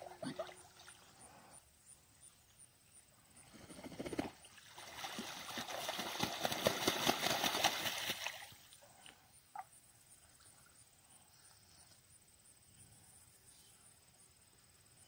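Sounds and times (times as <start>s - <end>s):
water splashing from ducks and geese: 4.4s - 8.7s.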